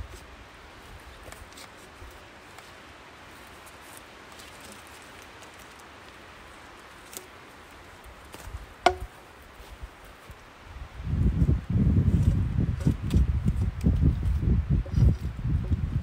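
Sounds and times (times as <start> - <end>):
light rustling of bark: 0.0 - 16.0
sharp knock with ring: 8.9 - 9.2.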